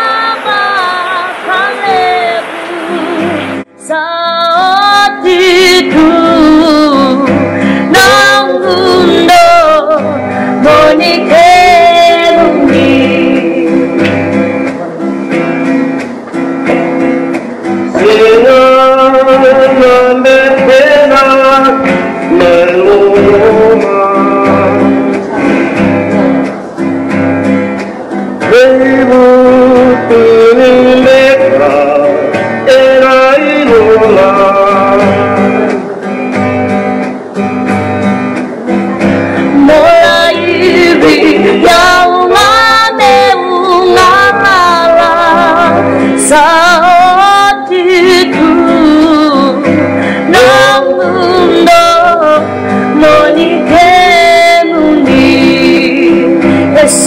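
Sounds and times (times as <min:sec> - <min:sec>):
woman singing with vibrato: 0:00.0 - 0:14.1, 0:39.4 - 0:57.0
instrumental accompaniment: 0:05.1 - 0:57.0.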